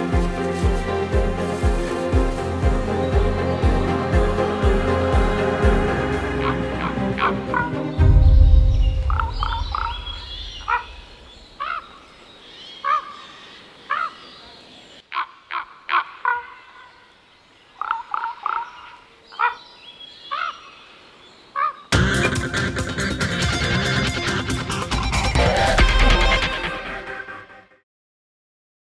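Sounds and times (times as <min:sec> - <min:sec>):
faint outdoor background: 0:00.0 - 0:27.7
birds calling harshly: 0:01.6 - 0:23.2.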